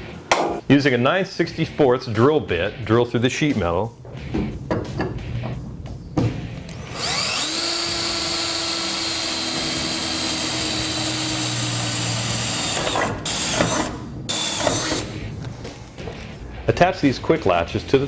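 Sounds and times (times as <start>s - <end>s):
power drill drilling sheet metal: 6.7s - 15.1s.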